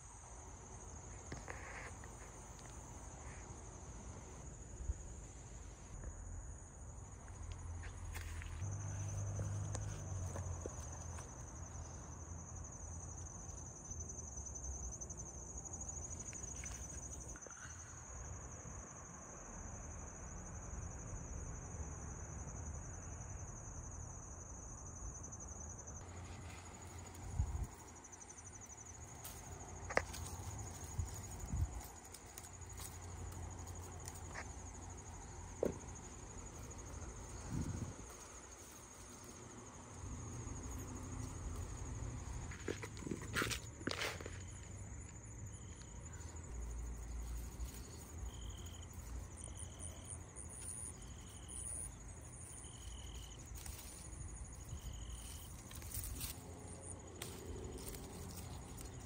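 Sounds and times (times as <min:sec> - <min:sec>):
insects trilling: 0:00.0 - 0:59.0.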